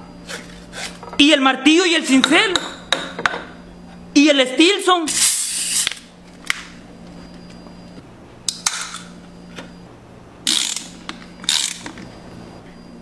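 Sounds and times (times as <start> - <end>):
pipe wrench ratcheting clicks: 10.5 - 11.9.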